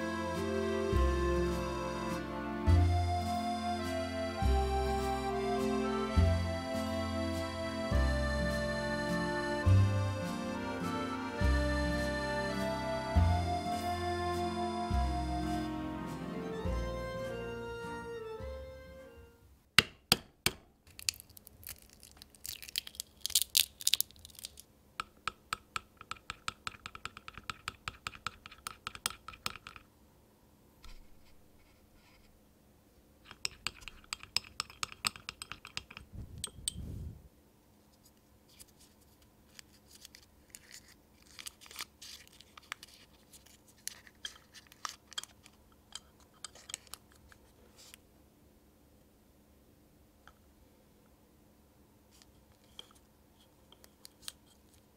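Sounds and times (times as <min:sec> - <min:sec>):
paper wrapper crinkling: 0:20.9 - 0:24.7, 0:38.5 - 0:45.5.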